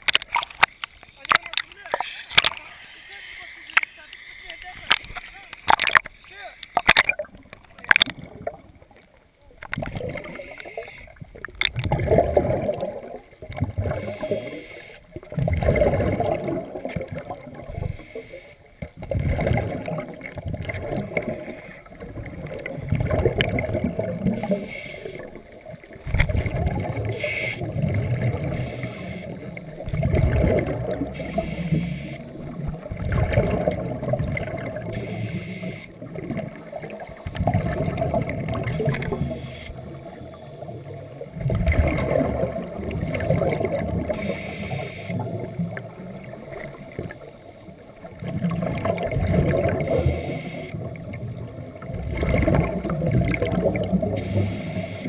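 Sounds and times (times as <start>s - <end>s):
faint regulator hiss: 0.6s - 6.9s, 10.2s - 11.3s, 13.9s - 15.2s, 17.7s - 18.9s, 24.4s - 26.0s, 27.0s - 27.7s, 28.4s - 29.9s, 30.9s - 32.9s, 34.6s - 37.4s, 39.0s - 41.0s, 44.1s - 45.9s, 49.9s - 51.7s, 54.0s - 55.0s.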